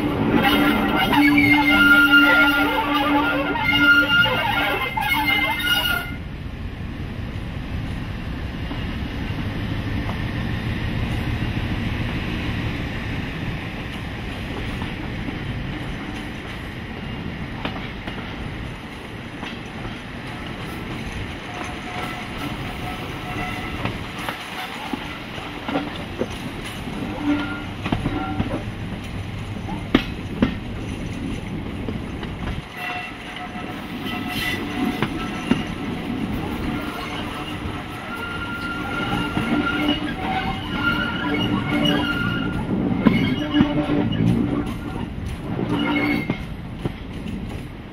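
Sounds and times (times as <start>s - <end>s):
diesel locomotive engine rumble: 0.0s - 47.9s
wheels clicking and squealing: 0.3s - 6.2s, 19.4s - 47.7s.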